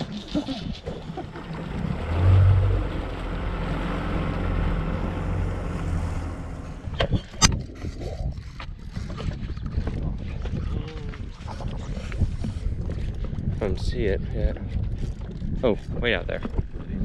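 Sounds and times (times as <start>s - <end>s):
boat motor running: 0.0s - 7.6s
rush of wind and water: 0.0s - 17.0s.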